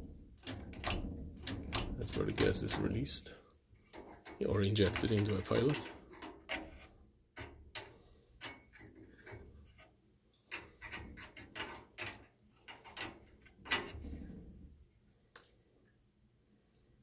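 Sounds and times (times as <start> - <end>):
small metal clicks and taps: 0.4 - 2.9, 3.8 - 9.5.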